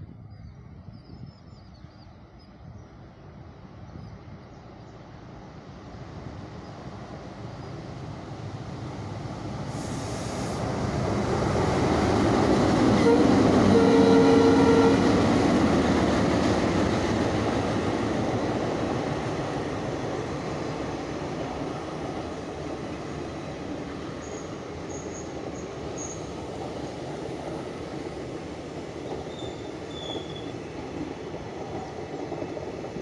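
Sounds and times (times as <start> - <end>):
diesel locomotive engine: 2.2 - 33.0
train wheels on rails: 6.8 - 33.0.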